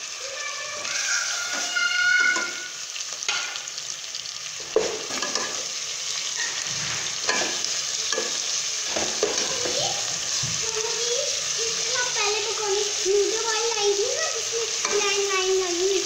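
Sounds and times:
meat and onions sizzling in oil: 0:00.0 - 0:16.0
spoon scraping and knocking pot: 0:04.7 - 0:05.7, 0:06.4 - 0:09.8.

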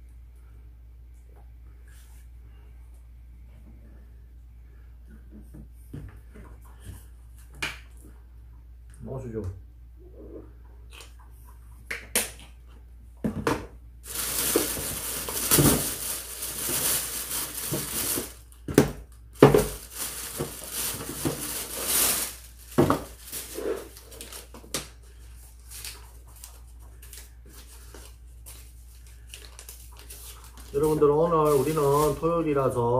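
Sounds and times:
plastic bag rustling: 0:14.0 - 0:18.6, 0:19.3 - 0:32.8.

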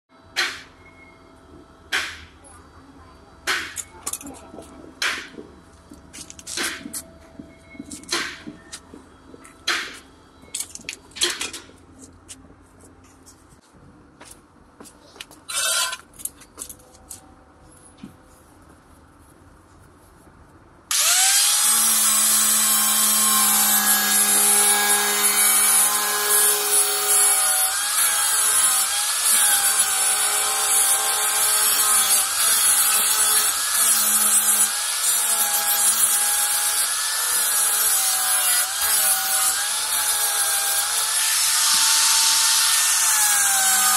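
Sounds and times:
angle grinder grinding metal: 0:20.9 - 0:43.9.

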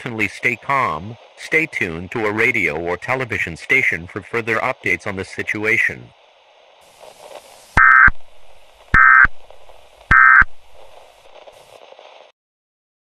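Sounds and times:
faint static hiss: 0:00.0 - 0:12.3
harsh digital screeches: 0:07.8 - 0:08.2, 0:08.9 - 0:09.4, 0:10.1 - 0:10.6.

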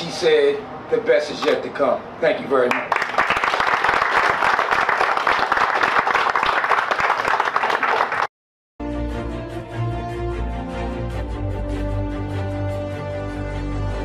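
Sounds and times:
audience applauding: 0:02.7 - 0:08.3
music: 0:08.8 - 0:14.0.

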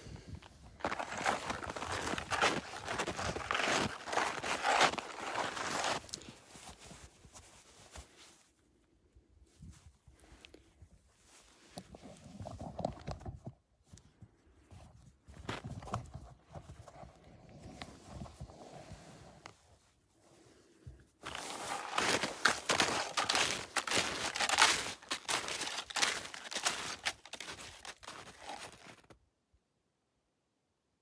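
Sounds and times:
loud crackling and crunching: 0:00.8 - 0:06.0, 0:21.3 - 0:29.1.

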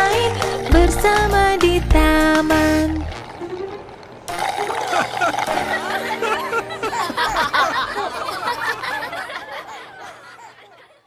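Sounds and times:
people laughing and giggling: 0:04.6 - 0:11.0.

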